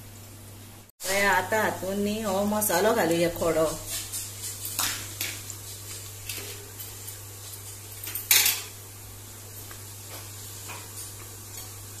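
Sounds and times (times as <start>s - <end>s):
onions sizzling in oil: 1.0s - 12.0s.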